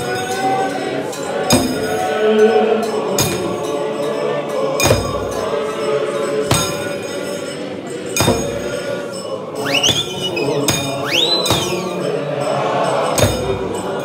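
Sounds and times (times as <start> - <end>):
men's choir singing a hymn: 0.0 - 14.0
high rising and falling whistles: 8.7 - 12.6.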